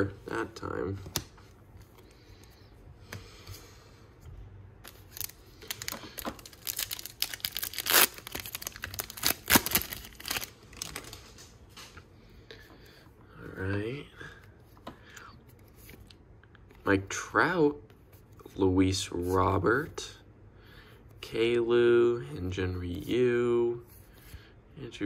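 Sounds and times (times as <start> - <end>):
wrapper tearing and crinkling: 4.9 - 11.3.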